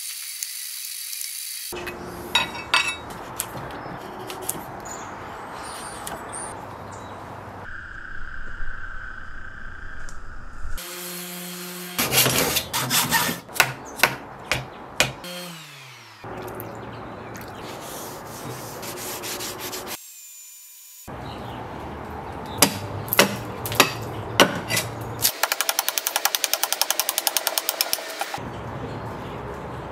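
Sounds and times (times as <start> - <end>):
axe striking wood: 13.5 - 15.2, 22.6 - 24.9.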